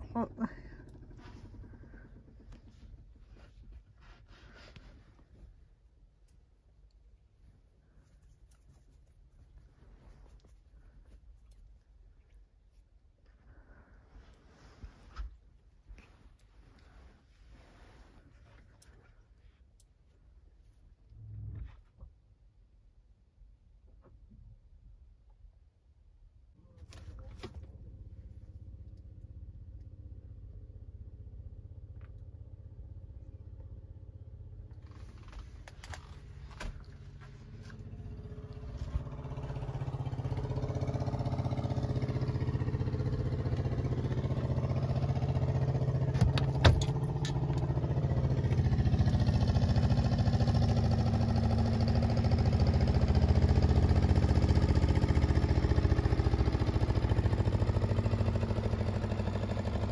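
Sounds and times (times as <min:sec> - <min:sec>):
outboard motor running: 0:00.0 - 0:03.2.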